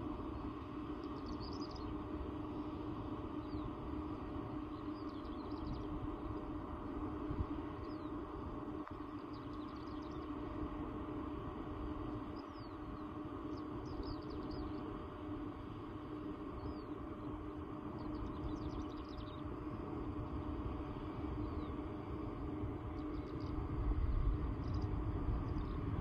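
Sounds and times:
distant jet engines rumbling: 0.0s - 26.0s
small birds chirping: 0.4s - 2.1s, 9.0s - 10.5s, 12.2s - 15.0s, 16.5s - 19.7s, 22.8s - 23.7s.

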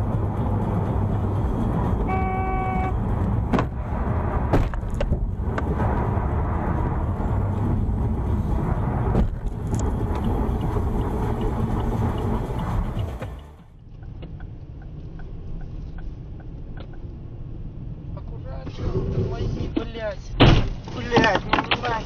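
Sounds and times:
car road and engine rumble: 0.0s - 22.0s
car horn blast: 2.0s - 3.0s.

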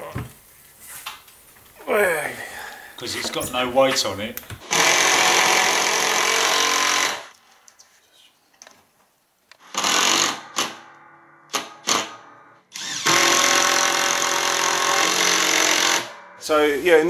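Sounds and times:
impact driver hammering screws: 9.6s - 10.8s, 12.7s - 16.1s.

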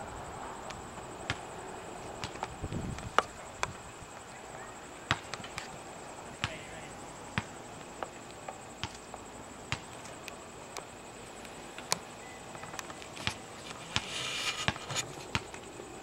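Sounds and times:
basketball bouncing: 2.2s - 3.8s, 5.1s - 5.7s, 7.4s - 10.0s, 14.7s - 15.6s
hissing noise: 13.2s - 15.4s.

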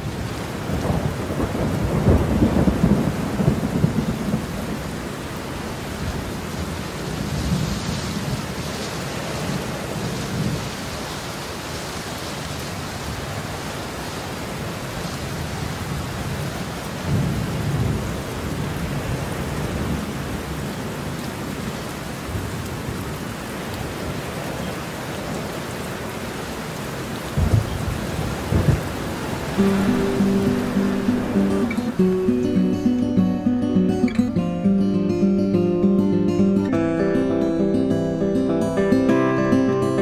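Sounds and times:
steady rain: 0.0s - 40.0s
rolling thunder: 0.8s - 4.8s, 27.4s - 32.1s.

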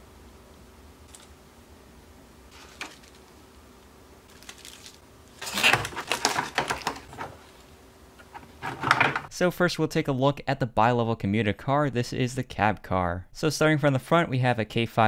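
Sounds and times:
plastic packaging crinkling: 2.5s - 3.6s, 4.2s - 7.7s.

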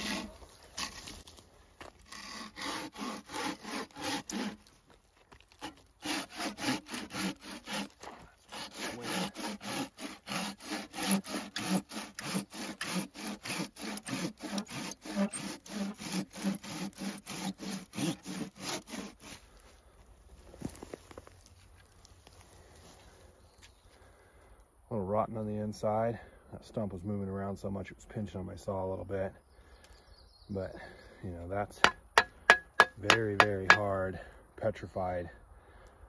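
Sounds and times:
pruning saw rasping through wood: 0.0s - 1.2s, 1.9s - 4.8s, 5.5s - 19.6s, 31.8s - 34.1s.

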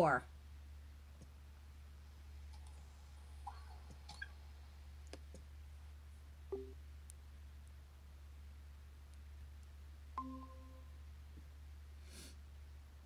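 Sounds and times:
steady low hum: 0.1s - 13.0s
brief low tone: 6.5s - 6.8s, 10.2s - 11.0s.

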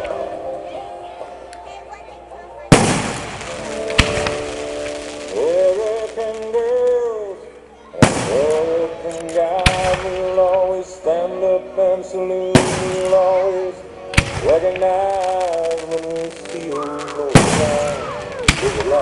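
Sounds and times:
music with long held notes: 0.0s - 19.0s
firework shells bursting: 2.7s - 7.0s, 14.2s - 19.0s.

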